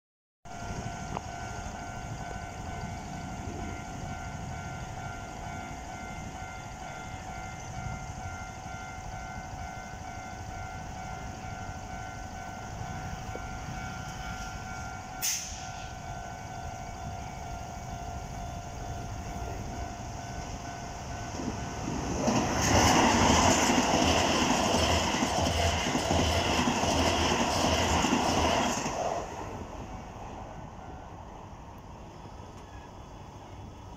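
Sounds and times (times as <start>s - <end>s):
level crossing alarm ringing: 0.5s - 22.3s
electric train passing rumble: 0.5s - 33.9s
train wheels clacking: 1.1s - 17.0s, 21.2s - 29.5s.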